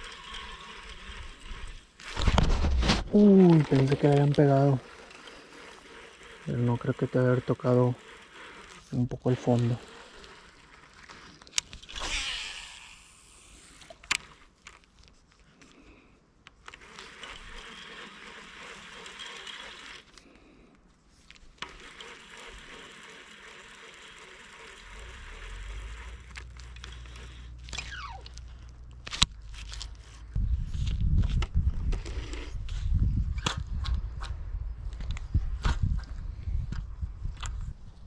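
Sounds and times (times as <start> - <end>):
fishing reel being cranked: 0.0 - 2.4, 3.2 - 14.9, 16.6 - 20.2, 21.5 - 29.9
rod and reel scraping and clicking: 0.0 - 20.3, 21.1 - 34.3.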